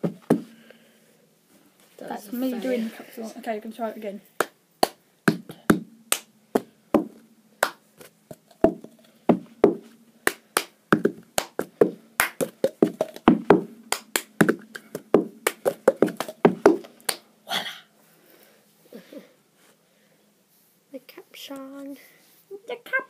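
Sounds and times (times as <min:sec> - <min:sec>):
hand claps: 0:04.4 - 0:17.3.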